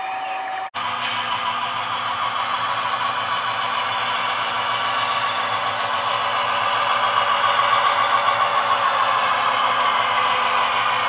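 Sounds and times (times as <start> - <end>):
model train rumbling on track: 0.8 - 11.0.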